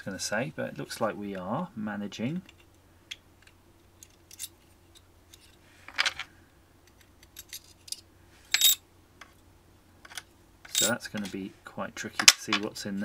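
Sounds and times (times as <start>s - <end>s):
tweezers scraping metal shield: 10.7s - 11.0s.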